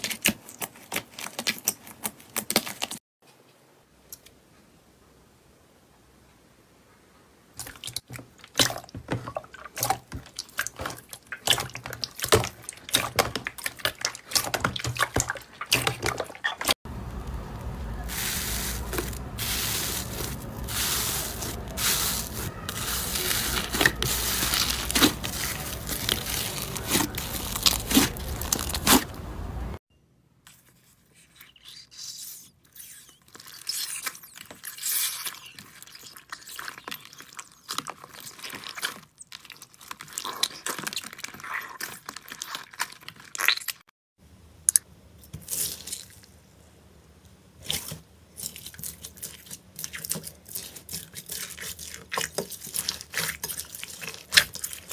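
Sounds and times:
slime squelching: 0:07.6 - 0:29.2, 0:30.5 - 0:43.8, 0:47.6 - 0:54.9
foamy slime crackling: 0:08.0 - 0:29.2, 0:47.7 - 0:54.9.

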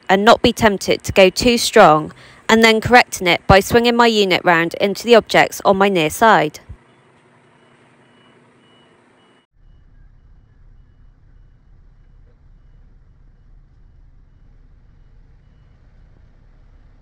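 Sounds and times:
truck reversing alarm beeping: 0:06.8 - 0:17.0
truck engine rumble: 0:09.5 - 0:17.0.

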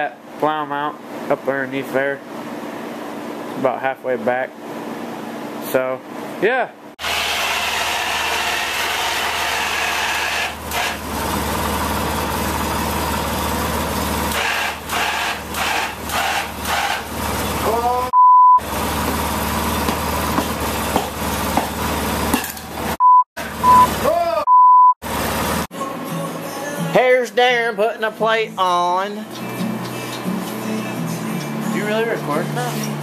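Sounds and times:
fan running: 0:00.0 - 0:23.0, 0:27.3 - 0:33.0
censor bleep: 0:18.1 - 0:18.6, 0:23.0 - 0:25.0.

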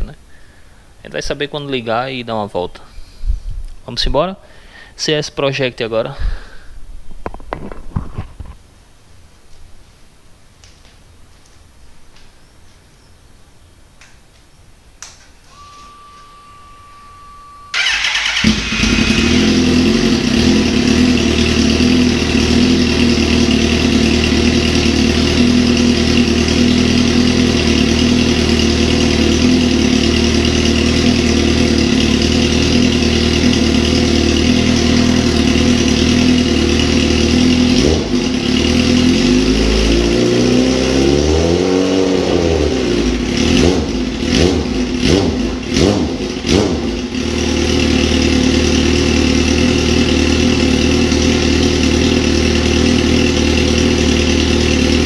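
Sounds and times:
motorcycle engine idling and revving: 0:17.8 - 0:55.0.

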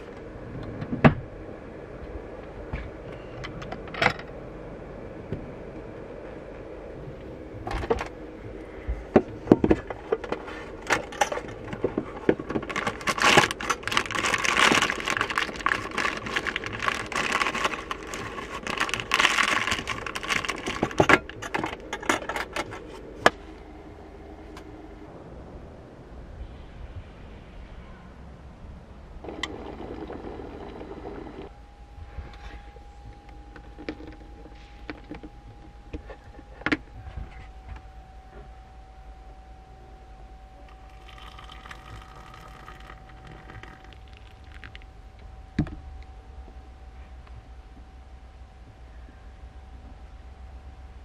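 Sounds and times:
steady low hum: 0:00.0 - 0:51.0
foil wrapper crinkling: 0:12.6 - 0:21.6, 0:40.8 - 0:44.8.

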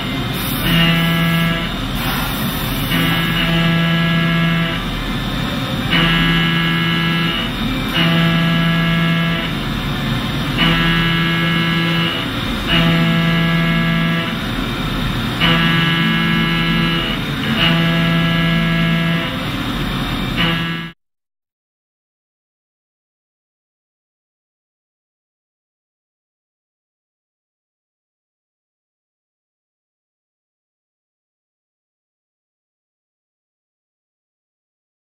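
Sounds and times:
milling cutter whining: 0:00.0 - 0:21.0.

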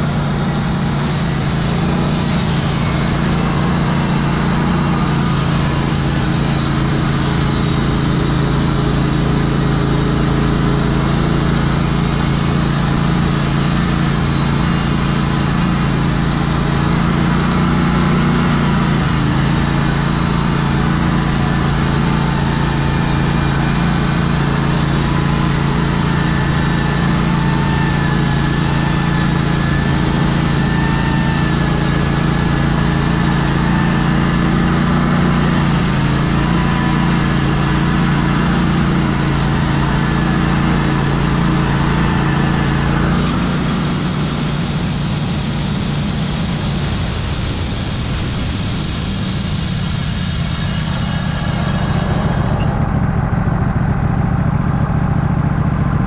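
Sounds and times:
band sawmill cutting log: 0:00.0 - 0:56.0.

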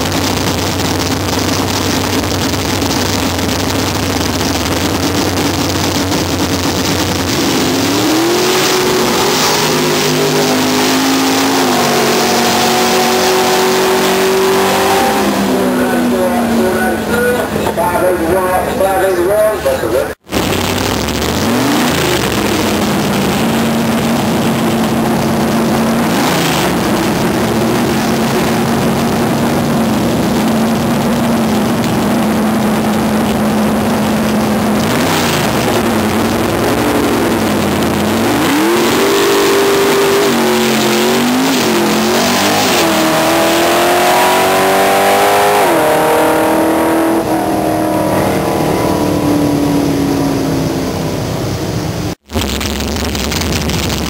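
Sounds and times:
pickup truck engine revving: 0:00.0 - 0:54.0.

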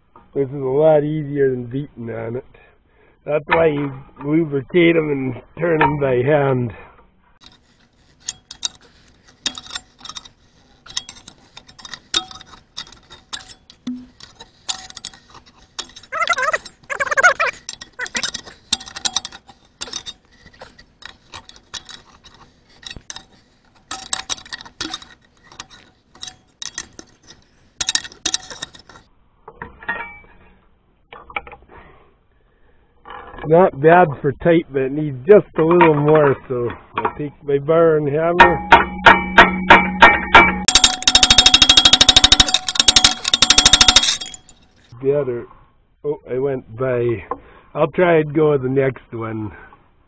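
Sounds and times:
metal hand tools clinking: 0:07.4 - 0:29.0, 0:40.7 - 0:44.8.

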